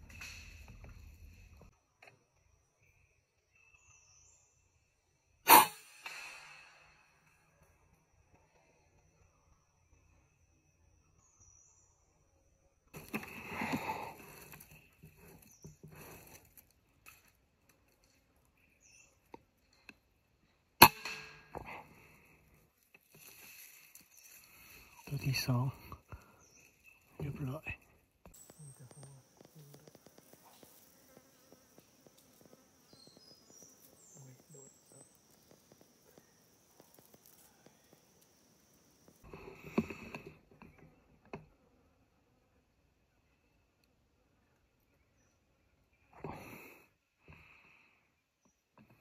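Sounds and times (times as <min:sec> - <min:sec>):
air rifle firing crack: 0:05.5 - 0:06.9
insect high-pitched drone: 0:28.4 - 0:39.3.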